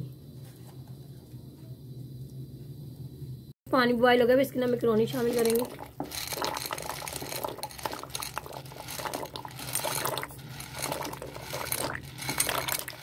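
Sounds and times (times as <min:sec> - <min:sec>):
water boiling in a pot: 0:04.1 - 0:13.0
dry pasta clicking: 0:05.1 - 0:13.0.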